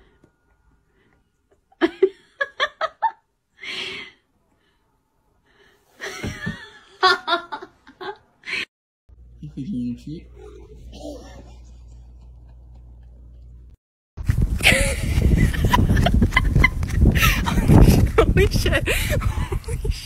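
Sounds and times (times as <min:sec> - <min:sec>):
person laughing: 0:10.4 - 0:13.4, 0:14.6 - 0:20.0.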